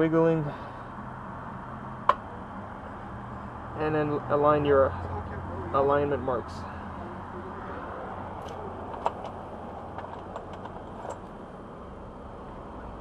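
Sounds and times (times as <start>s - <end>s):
gloved hands handling parts: 8.4s - 11.4s.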